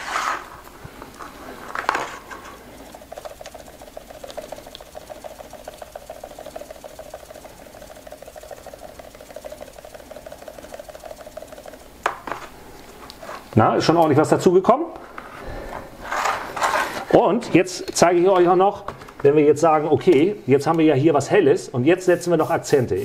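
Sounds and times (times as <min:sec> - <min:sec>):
fast-pulsing electric buzz: 0:01.4 - 0:13.0
pump spray hissing: 0:01.4 - 0:13.5, 0:22.0 - 0:23.0.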